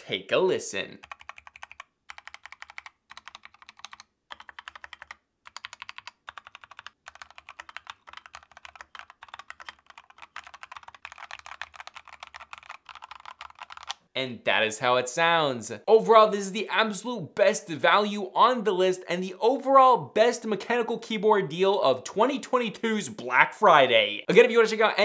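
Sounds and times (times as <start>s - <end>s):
mechanical keyboard typing: 1.0s - 14.0s.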